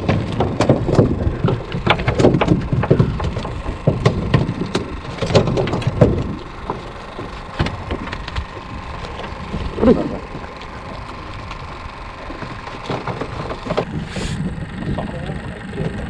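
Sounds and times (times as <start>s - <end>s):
hard objects clattering and knocking: 0.0s - 6.8s.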